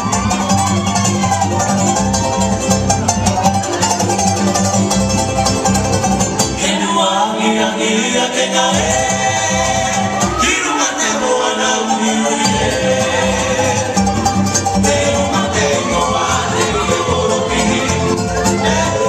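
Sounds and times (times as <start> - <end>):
bass line: 0.0 - 19.0
strummed string instruments: 0.0 - 19.0
person singing: 6.6 - 19.0.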